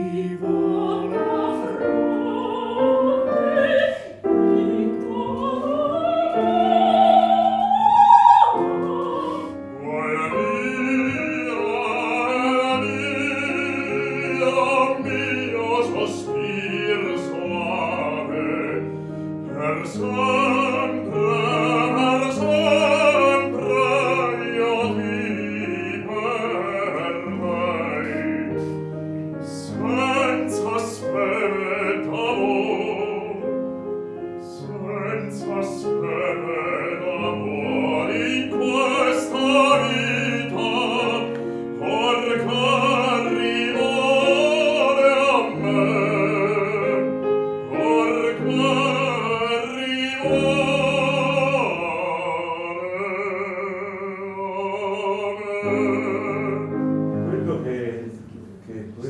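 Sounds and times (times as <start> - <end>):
woman singing opera: 0.0 - 18.8, 19.5 - 28.6, 29.6 - 33.4, 34.4 - 47.1
man singing opera: 0.0 - 58.3
piano accompaniment: 0.0 - 59.0.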